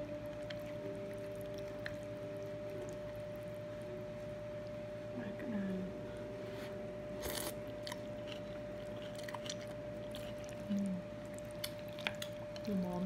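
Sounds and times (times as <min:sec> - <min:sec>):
person chewing: 0:00.0 - 0:03.6, 0:07.2 - 0:12.9
faint steady background hum: 0:00.0 - 0:13.0
person humming: 0:10.6 - 0:11.1.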